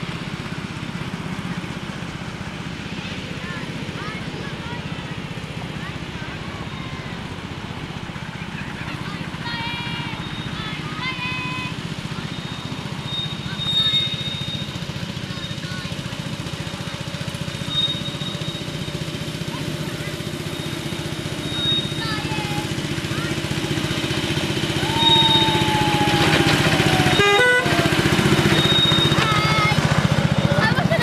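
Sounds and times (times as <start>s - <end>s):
miniature locomotive engine running: 0.0s - 31.0s
short horn toot: 27.0s - 27.8s.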